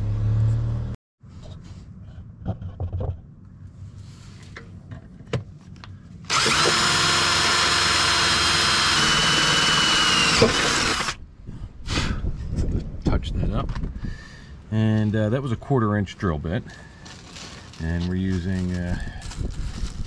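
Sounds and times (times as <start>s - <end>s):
electric drill boring through steel: 6.3s - 11.2s.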